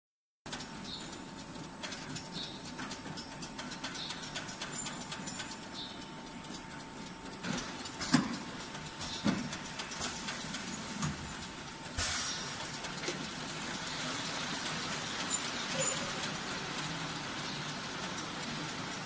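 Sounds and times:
filling machine clicks and clatter: 0.5 - 19.0
steady hiss: 6.4 - 19.0.

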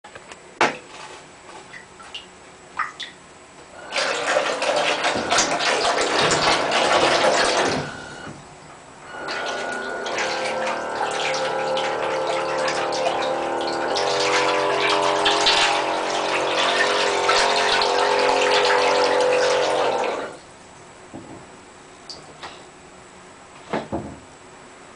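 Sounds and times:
electric pump motor humming: 3.7 - 20.6
water jet gushing and splashing: 3.8 - 20.5.

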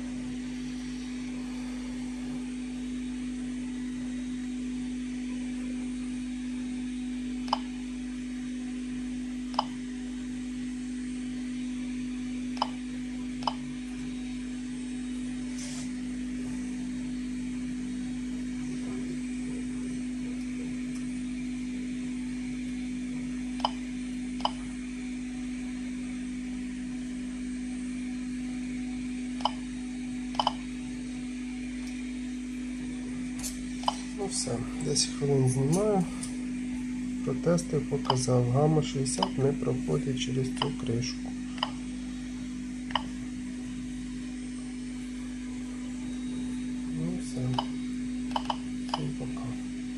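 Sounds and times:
steady low hum: 0.0 - 49.9
geiger counter click-beeps: 9.5 - 9.8, 13.4 - 13.6, 23.6 - 23.8, 24.4 - 24.6, 29.4 - 29.6, 30.4 - 30.6, 38.0 - 38.3, 39.1 - 39.4, 40.6 - 40.9, 48.3 - 49.1.

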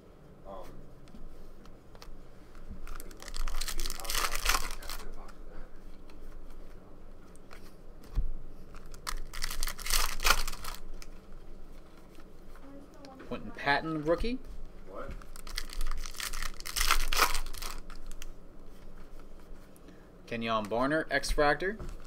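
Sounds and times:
foil wrapper tearing and crinkling: 2.8 - 5.2, 8.8 - 11.1, 15.3 - 18.3.

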